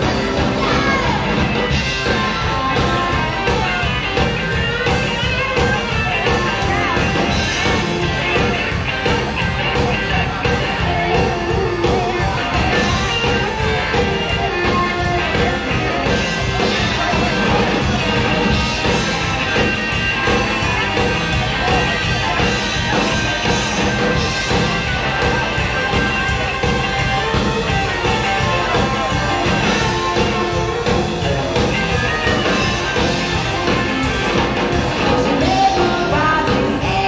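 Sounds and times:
rock band playing: 0.0 - 37.0
woman singing: 35.0 - 37.0.

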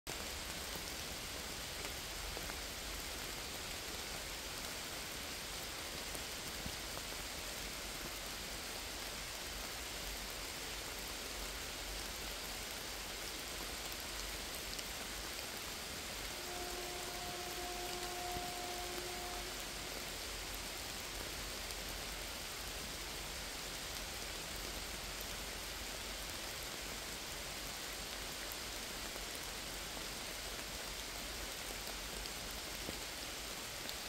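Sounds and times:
rain falling on leaves: 0.1 - 34.0
single raindrops: 13.7 - 22.2.

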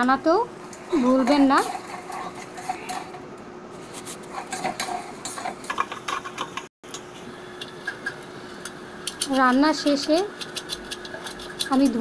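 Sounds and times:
metal spatula scraping frying pan: 0.7 - 6.4.

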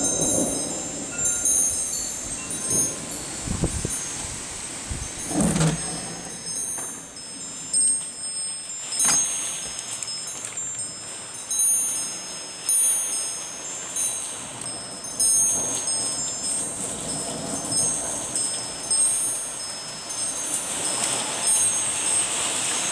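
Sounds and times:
wind gust: 0.0 - 9.7
rain hiss: 0.0 - 22.9
wind chimes ringing: 0.0 - 22.9.

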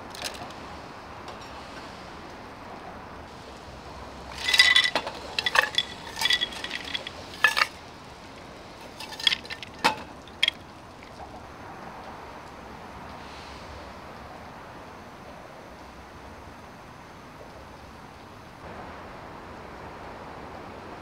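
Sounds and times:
ice cubes clinking: 4.3 - 7.8, 8.8 - 10.7.

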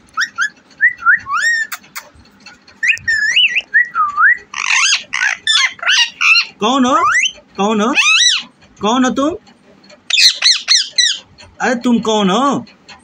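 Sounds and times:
parakeet chirping and squawking: 0.1 - 3.8, 4.4 - 8.6, 10.0 - 11.6.

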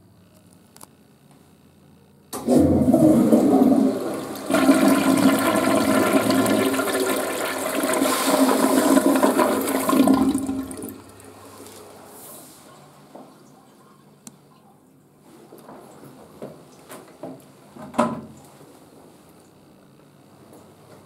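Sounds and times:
toilet flushing: 2.4 - 14.0.

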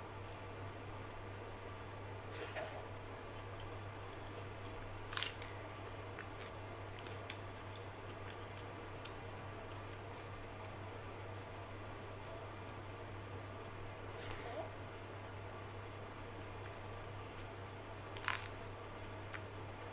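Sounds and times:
steady low hum: 0.0 - 19.9.

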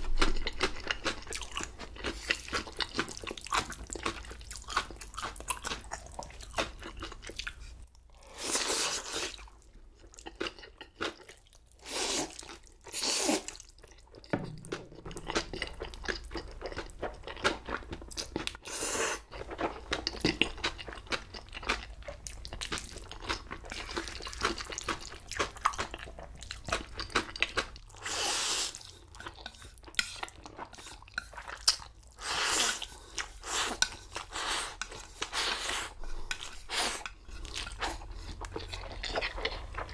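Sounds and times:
wet chewing with crunches: 0.0 - 39.9
slurping noodles: 8.2 - 9.4, 11.8 - 13.6, 28.0 - 28.9, 32.2 - 38.0.

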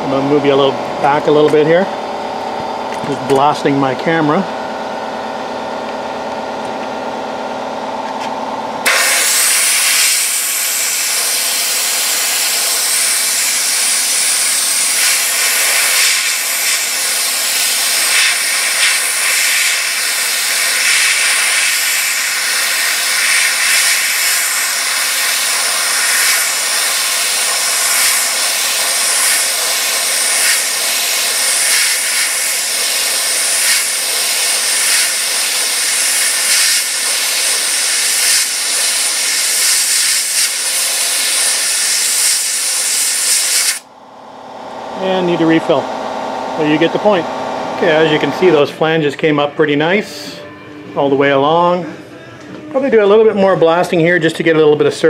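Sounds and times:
sandblaster hiss of air and grit: 8.9 - 43.8.

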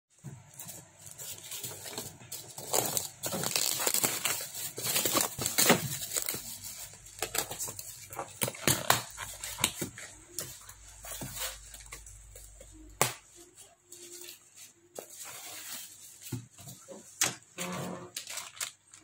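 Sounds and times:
cardboard rustling: 0.2 - 17.2
plastic bag crinkling and tearing: 0.8 - 12.3, 18.0 - 19.0.

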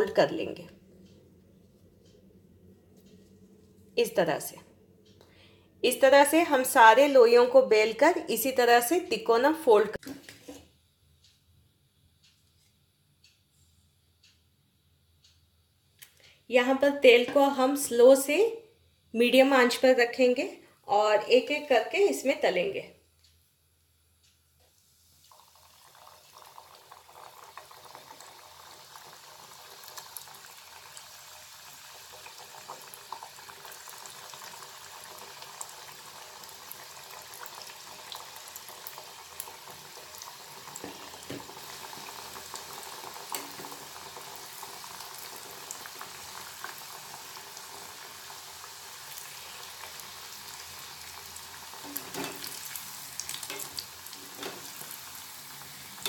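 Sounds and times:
dough deep-frying in hot oil: 24.7 - 56.0.

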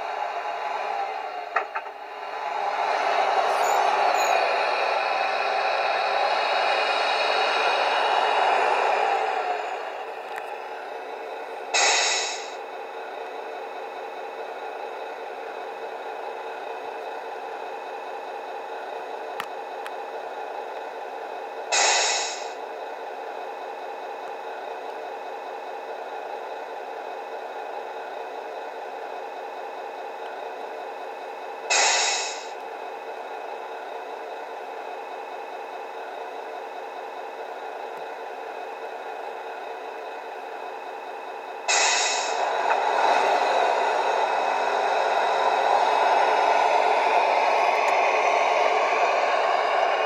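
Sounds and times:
diesel engine idling: 0.0 - 50.0
loud air hiss: 11.7 - 12.6, 21.7 - 22.6, 31.7 - 32.5, 41.7 - 42.4.

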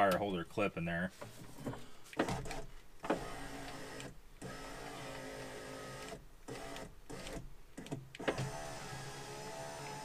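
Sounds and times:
electric window motor humming: 3.1 - 7.4, 8.2 - 10.0.

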